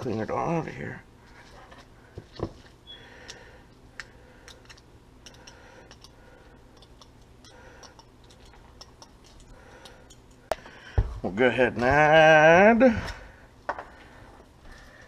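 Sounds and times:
low steady hum: 0.0s - 15.0s
fork clicking on wire masher: 4.5s - 10.5s.

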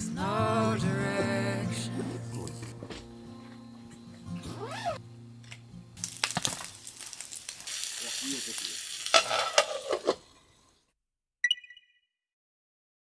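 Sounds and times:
food sizzling in a frying pan: 6.0s - 10.4s
utensil clicks and clinks on pan: 9.1s - 10.1s.

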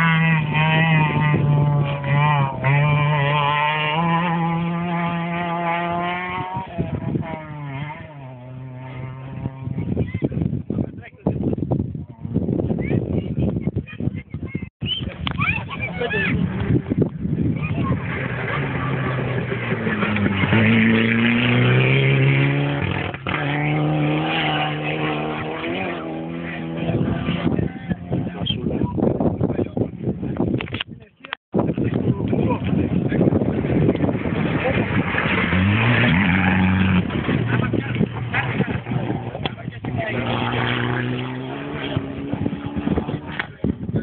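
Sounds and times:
rally car engine revving: 0.0s - 10.2s, 16.3s - 28.8s, 31.8s - 43.7s
exhaust pops: 16.5s - 28.6s, 31.7s - 44.0s.

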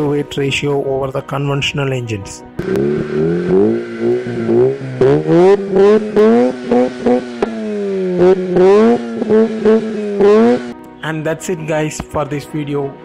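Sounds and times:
rotary engine revving: 2.6s - 10.8s.

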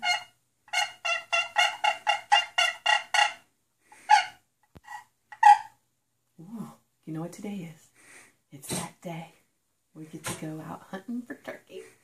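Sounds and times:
turkey gobbling: 0.0s - 3.4s, 4.0s - 5.7s.

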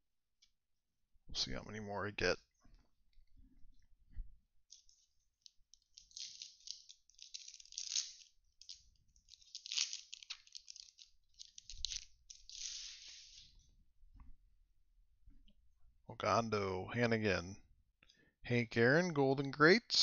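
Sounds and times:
foil wrapper crinkling and tearing: 4.7s - 13.5s.

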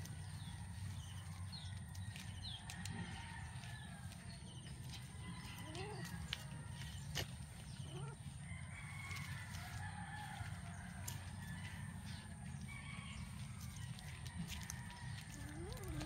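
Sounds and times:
rooster crowing: 5.2s - 7.0s, 8.0s - 16.0s.

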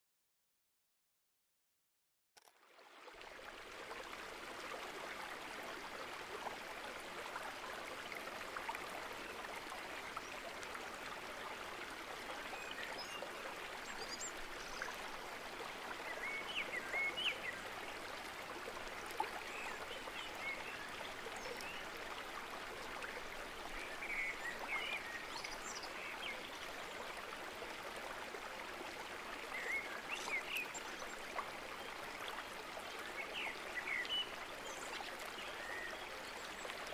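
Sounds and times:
flowing stream: 2.4s - 36.9s.

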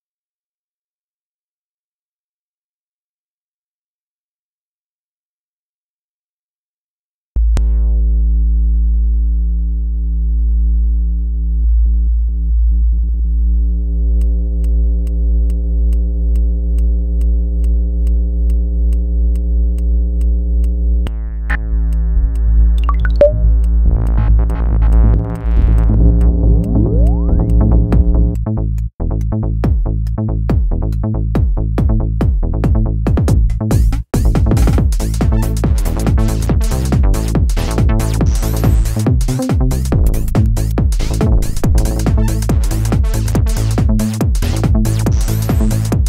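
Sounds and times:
deep hum: 7.4s - 46.0s
sweeping electronic pitches: 22.8s - 23.5s.

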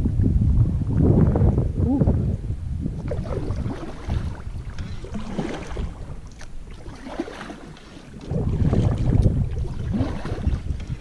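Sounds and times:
wind buffeting microphone: 0.0s - 11.0s
kayak paddling water: 2.6s - 11.0s.

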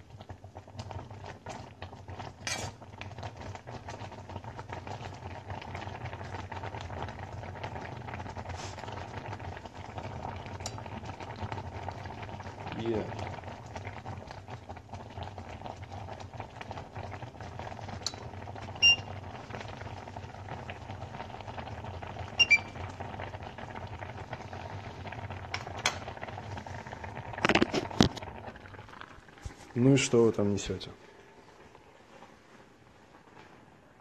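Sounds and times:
pot bubbling: 0.0s - 34.0s
metal utensil clinking on pot: 2.4s - 2.8s.

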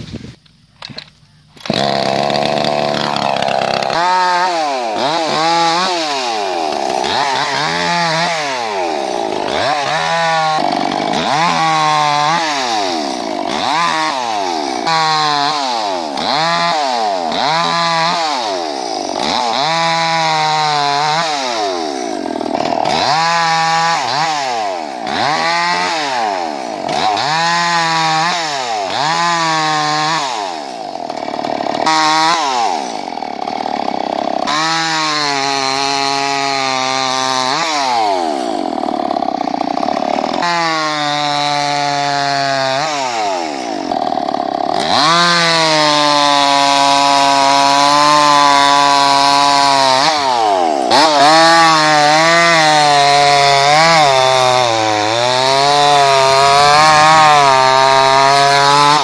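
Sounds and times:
chainsaw revving while cutting: 1.6s - 59.0s.

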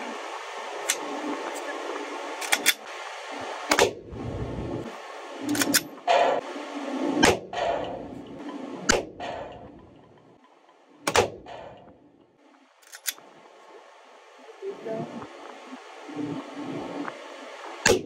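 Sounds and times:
pistol shots with echo: 11.1s - 11.9s.

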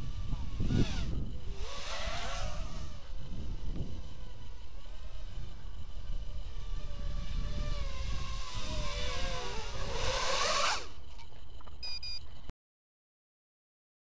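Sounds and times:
wind noise on microphone: 0.0s - 10.9s
drone motors whining: 0.0s - 12.5s
high beep: 11.8s - 12.2s.

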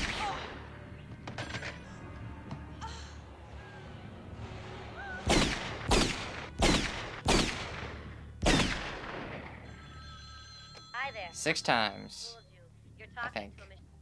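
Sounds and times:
loud gunshots with echo: 5.3s - 9.6s.

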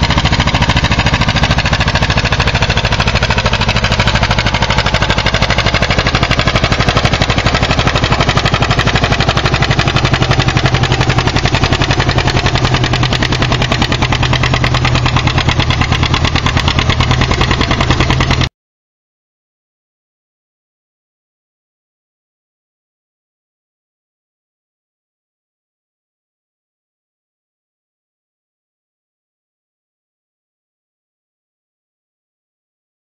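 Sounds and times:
tractor engine popping exhaust: 0.0s - 18.5s.

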